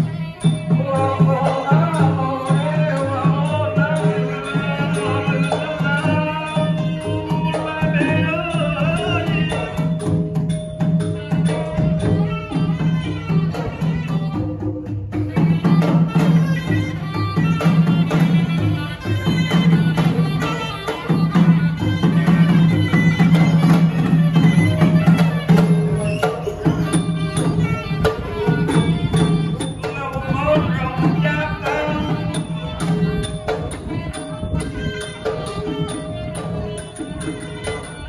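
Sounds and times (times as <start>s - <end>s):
drums and small percussion: 0.0s - 38.0s
man chanting into microphone: 29.8s - 32.6s.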